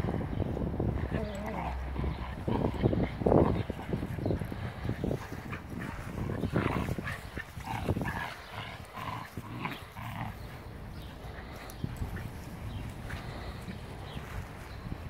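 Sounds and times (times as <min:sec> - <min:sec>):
dogs growling while playing: 0:00.9 - 0:14.4.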